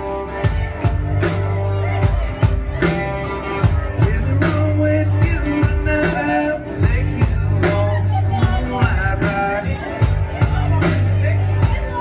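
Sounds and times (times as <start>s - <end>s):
rock band playing: 0.0s - 12.0s
man singing into microphone: 3.8s - 12.0s.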